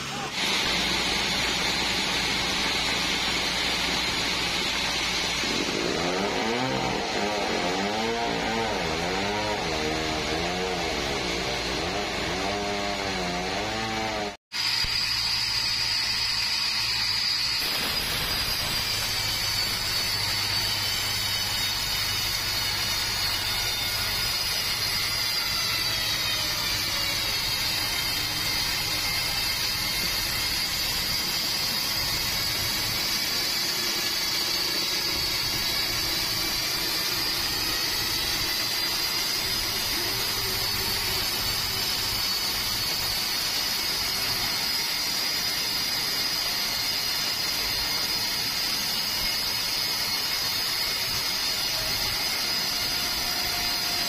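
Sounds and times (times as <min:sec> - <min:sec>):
band saw whining through log: 0:00.0 - 0:54.0
machine noise: 0:00.0 - 0:54.0.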